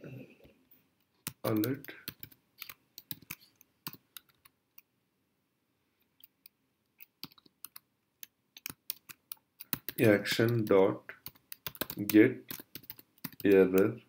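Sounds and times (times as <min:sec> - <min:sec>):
computer keyboard typing: 0:01.2 - 0:04.9, 0:06.3 - 0:13.9.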